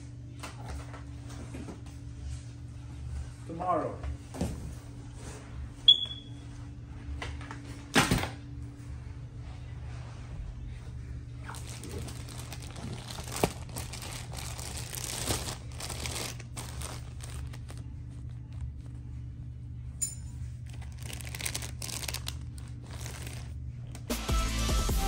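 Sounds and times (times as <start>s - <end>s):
steady low hum: 0.0s - 24.2s
plastic bags crinkling: 11.4s - 18.8s, 20.6s - 23.6s.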